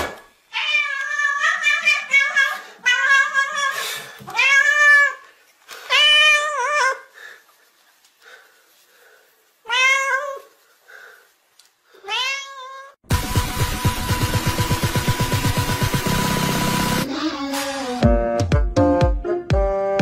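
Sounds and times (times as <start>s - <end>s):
cat meowing: 0.5s - 5.2s, 9.6s - 10.5s, 12.0s - 13.0s.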